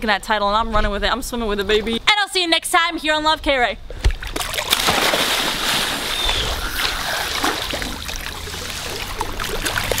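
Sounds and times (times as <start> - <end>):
water splashing and sloshing: 3.9 - 10.0.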